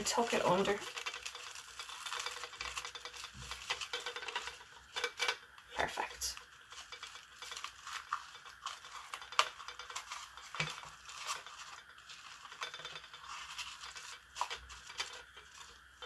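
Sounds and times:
twine scraping against pot: 0.0s - 16.0s.

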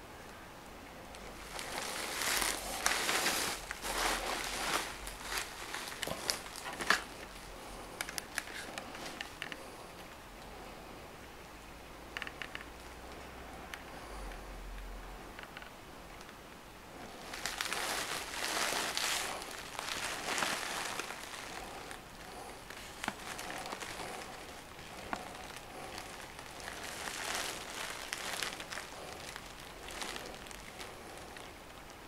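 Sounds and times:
hands rustling plastic case: 1.2s - 7.4s, 17.2s - 31.5s.

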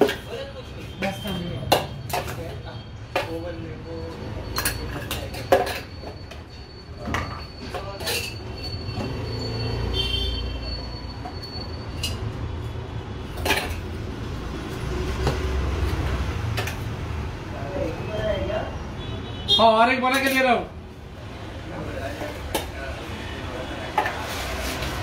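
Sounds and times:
knife clinking against jars: 1.1s - 6.5s, 7.1s - 8.9s.

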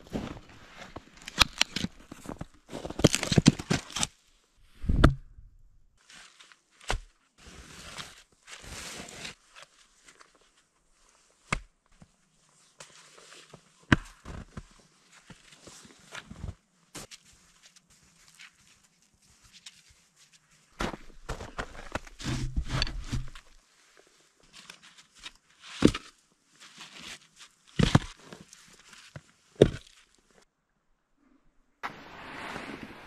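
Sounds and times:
rustling and crunching: 0.0s - 4.2s, 12.8s - 30.4s.

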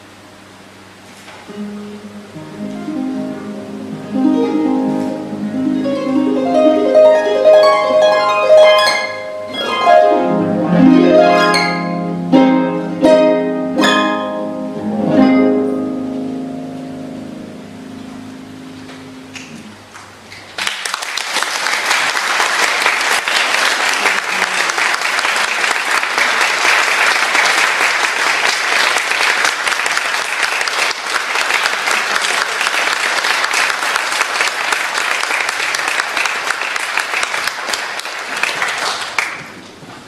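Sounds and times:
harp low notes ringing: 1.5s - 19.8s
audience applauding: 19.3s - 39.8s.

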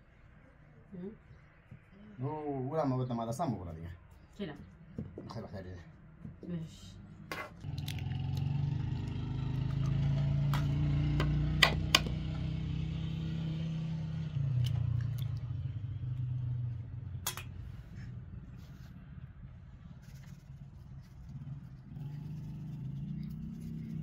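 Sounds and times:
low motor hum: 7.6s - 24.0s
eggs cracked against steel bowl: 17.2s - 17.6s.

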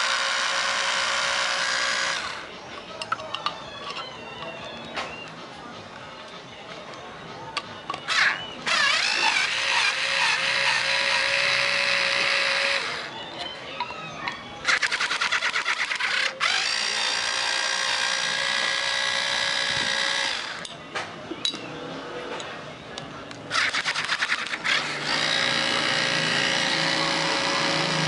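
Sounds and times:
drill motor whine: 0.0s - 2.5s, 8.1s - 14.0s, 14.6s - 20.7s, 23.5s - 28.0s
drill clicking: 8.1s - 13.1s, 14.7s - 20.8s, 23.5s - 28.0s.

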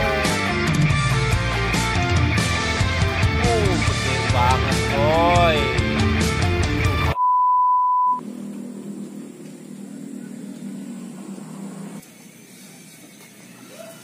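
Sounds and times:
high-pitched electronic beep: 7.2s - 8.2s.

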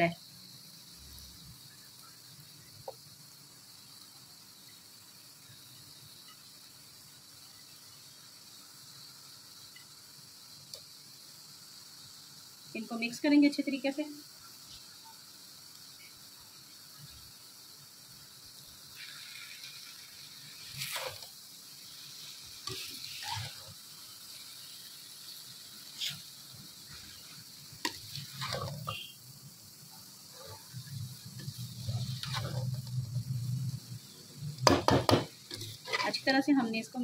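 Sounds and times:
metal spatula scraping a wok: 19.0s - 21.4s, 22.5s - 23.9s, 25.8s - 29.1s, 31.4s - 32.9s, 35.5s - 36.3s.

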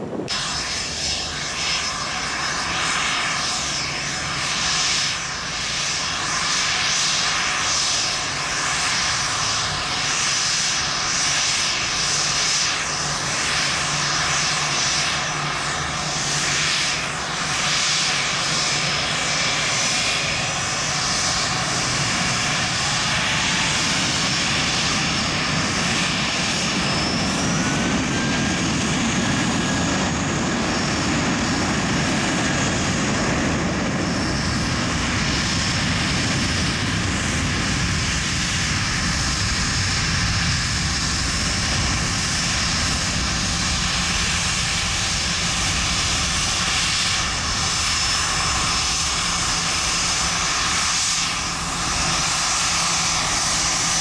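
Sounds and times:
high-pitched engine whine: 0.0s - 54.0s
jet engines rushing hiss: 0.0s - 54.0s.

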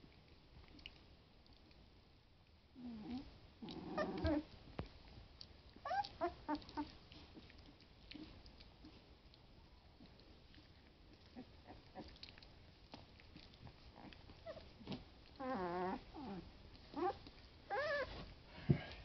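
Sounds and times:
puppy growls and whines: 2.8s - 4.6s, 5.7s - 7.4s, 11.1s - 12.5s, 13.3s - 18.3s
puppies scuffling: 4.0s - 19.0s.

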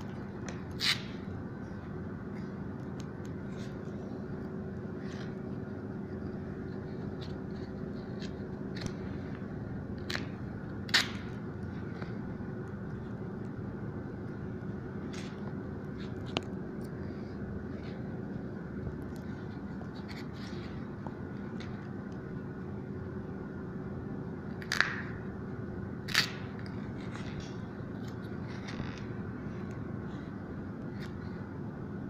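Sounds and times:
low background hum: 0.0s - 32.0s
adhesive tape clicking and crackling: 26.0s - 29.8s.

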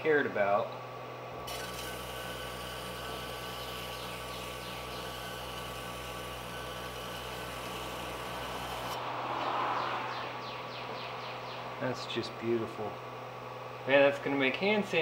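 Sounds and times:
electric disc sander motor hum: 1.4s - 9.2s.

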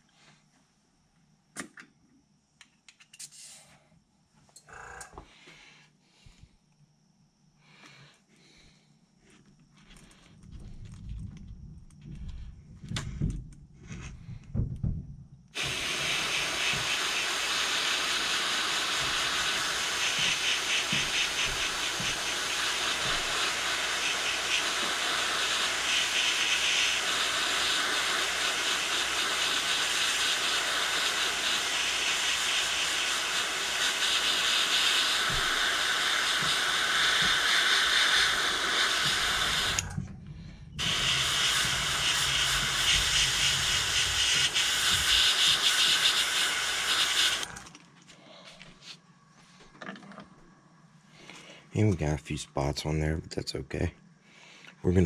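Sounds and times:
low knocks and handling bumps: 10.6s - 15.4s
airbrush spraying hiss: 15.6s - 40.0s, 40.8s - 47.6s.

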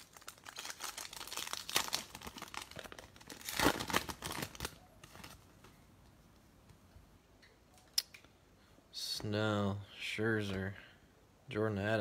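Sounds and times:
plastic wrapper tearing and crinkling: 0.0s - 5.4s.

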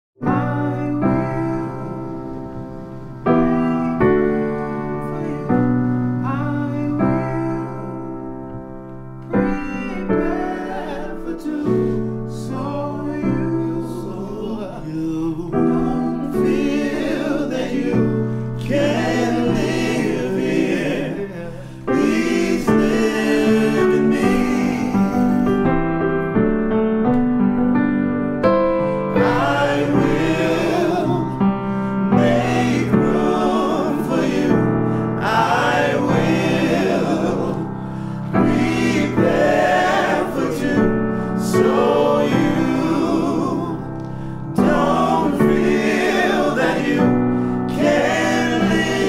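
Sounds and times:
person singing: 0.2s - 2.3s, 3.3s - 8.2s, 9.3s - 25.6s
slow piano chords: 0.2s - 49.0s.

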